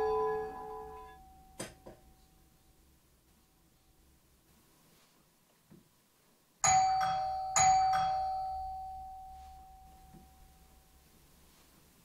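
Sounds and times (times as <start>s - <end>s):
doorbell chime: 0.0s - 2.1s, 6.6s - 10.8s.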